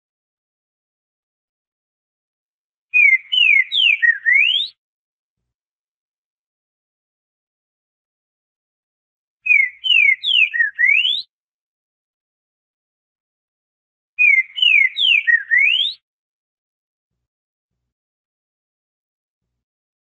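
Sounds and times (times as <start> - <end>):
bird singing slurred whistles: 2.9 - 4.8, 9.4 - 11.3, 14.2 - 16.0.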